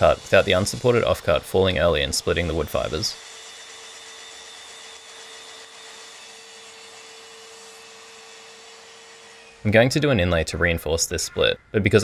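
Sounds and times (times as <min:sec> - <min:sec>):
steady motor hum: 0:00.0 - 0:09.7.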